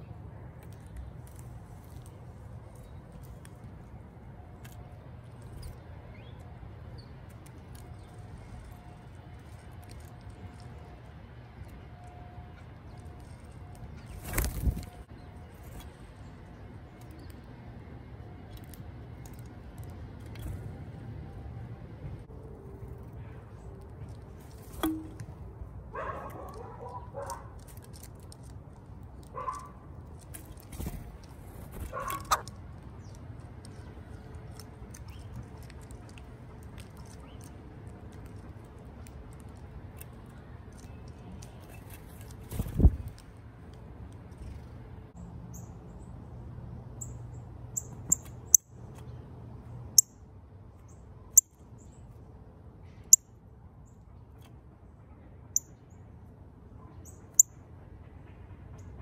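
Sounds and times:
bird bill clicking among seeds: 0.4s - 17.6s, 18.3s - 20.6s, 26.0s - 44.8s.

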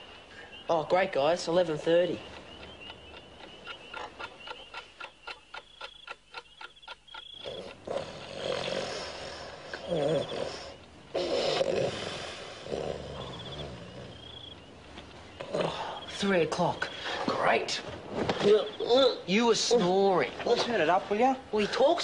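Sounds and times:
alarm clock ticking: 1.5s - 7.9s
person snoring: 7.4s - 14.2s.

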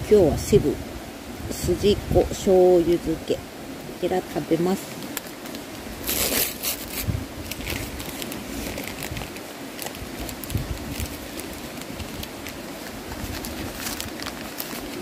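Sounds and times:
plastic wrapper crinkling and tearing: 5.0s - 15.0s.

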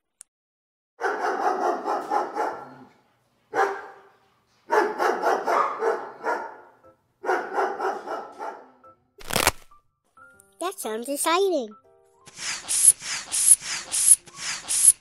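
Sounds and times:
dogs barking rapidly: 1.0s - 2.9s, 3.5s - 4.1s, 4.7s - 8.8s.

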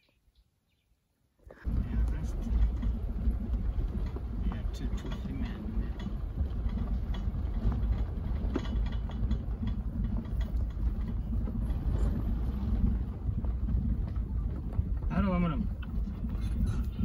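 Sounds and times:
car engine low rumble: 1.4s - 17.0s
light rattles: 1.6s - 17.0s.

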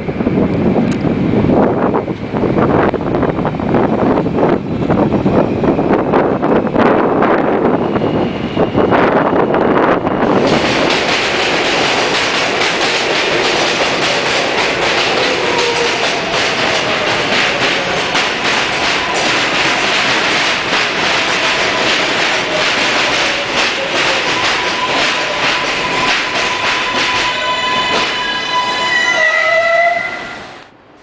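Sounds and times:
subway train wheels rushing on rail: 0.0s - 31.0s
rapid clacking over rail joints: 10.2s - 28.2s.

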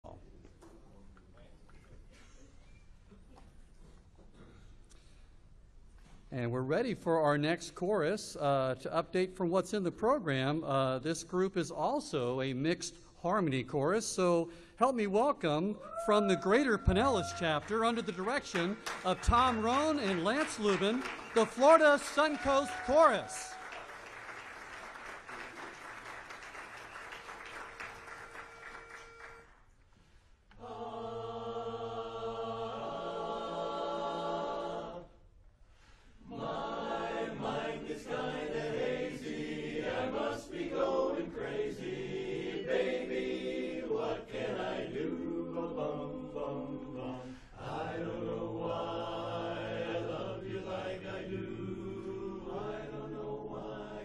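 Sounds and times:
applause: 16.5s - 29.6s
barbershop chorus singing a cappella: 30.5s - 35.2s, 36.2s - 54.0s.

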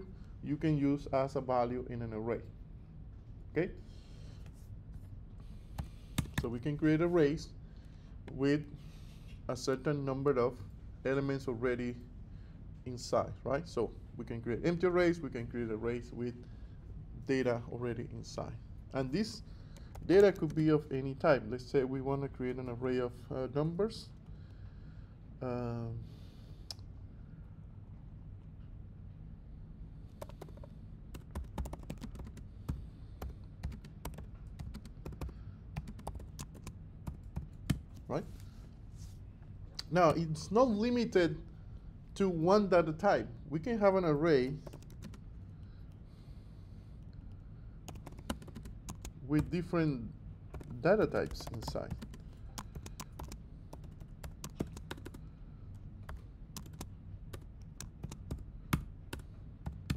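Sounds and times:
low steady hum: 0.0s - 59.9s
computer keyboard typing: 5.7s - 6.5s, 19.8s - 20.6s, 30.2s - 38.1s, 44.6s - 45.2s, 47.9s - 49.6s, 50.5s - 55.2s, 56.0s - 59.9s.

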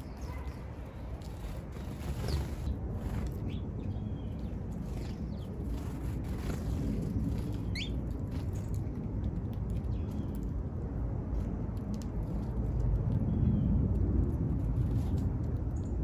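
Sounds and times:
small birds chirping: 0.0s - 10.6s
steady low rumble: 0.0s - 16.0s.

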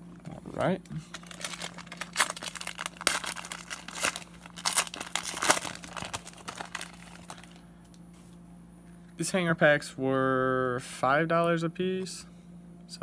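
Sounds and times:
plastic wrapper tearing and crinkling: 1.0s - 7.6s.

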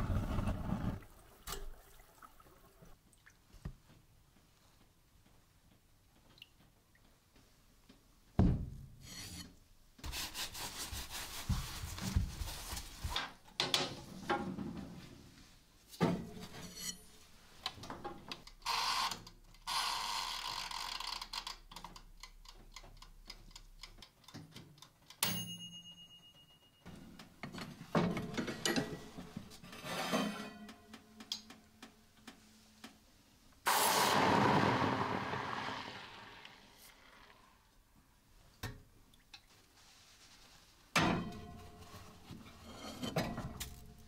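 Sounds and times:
metallic click with ring: 25.2s - 26.7s.

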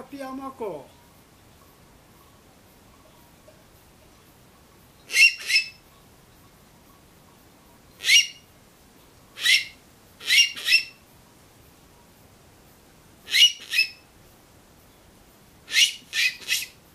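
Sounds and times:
shrill squeaking animal call whistles: 5.1s - 5.8s, 8.0s - 8.4s, 9.4s - 11.0s, 13.3s - 14.0s, 15.7s - 16.8s.

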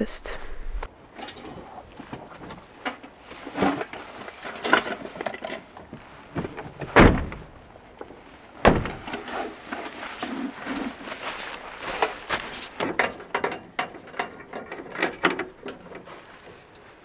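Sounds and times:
rustling of handling: 1.2s - 17.0s
truck door slamming: 6.8s - 7.6s, 8.6s - 9.2s.

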